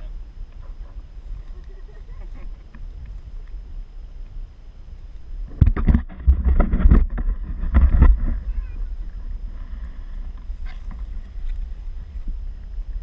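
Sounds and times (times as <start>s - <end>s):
wind buffeting microphone: 0.1s - 13.0s.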